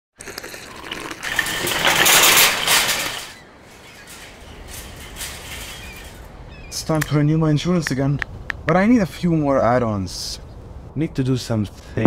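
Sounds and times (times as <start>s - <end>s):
slurping through a straw: 0.2s - 2.3s
faint background noise: 0.2s - 12.0s.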